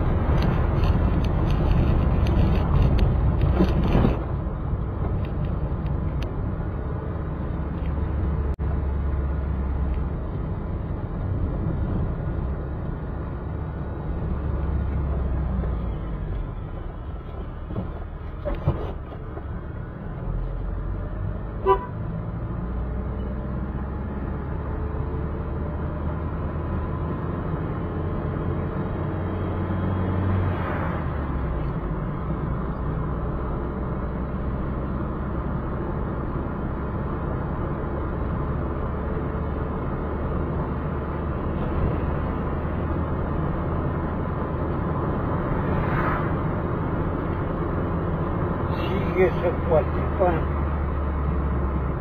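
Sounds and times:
car engine and road noise: 0.0s - 52.0s
car horn toot: 21.6s - 22.0s.

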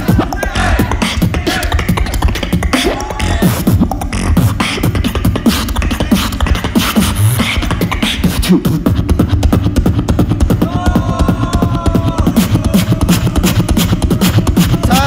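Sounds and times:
beatboxing into a microphone: 0.0s - 15.0s.

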